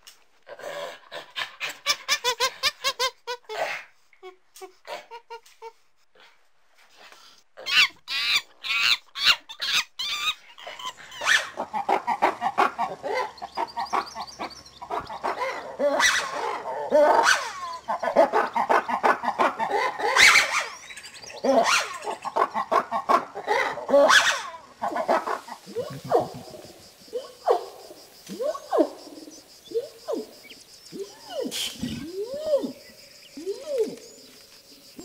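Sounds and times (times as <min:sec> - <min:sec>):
monkey screeching: 0:07.6 - 0:26.6, 0:31.0 - 0:32.8
lemurs wailing: 0:07.6 - 0:34.0.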